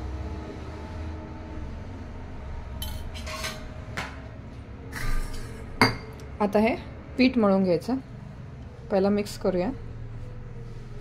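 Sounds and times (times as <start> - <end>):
low steady hum: 0.0 - 11.0
spoon clinking steel bowl: 2.8 - 3.6.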